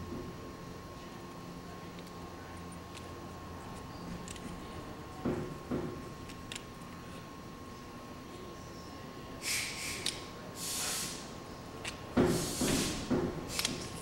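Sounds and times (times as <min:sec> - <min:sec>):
handling clicks: 0:06.2 - 0:07.0.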